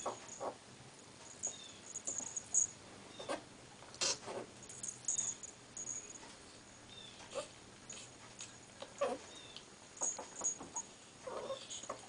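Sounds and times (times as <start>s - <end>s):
collar jingle: 1.2s - 2.8s, 4.6s - 6.4s, 10.0s - 10.8s
faint high squeaks: 9.0s - 12.0s.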